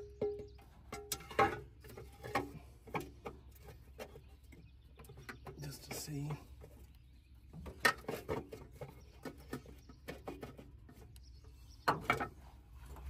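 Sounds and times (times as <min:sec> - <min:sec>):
sheet metal clanks and scrapes: 0:00.9 - 0:04.2.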